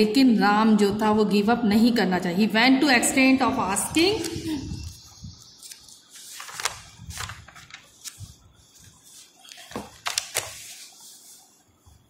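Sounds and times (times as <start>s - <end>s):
paper pages rustling: 4.2s - 12.0s.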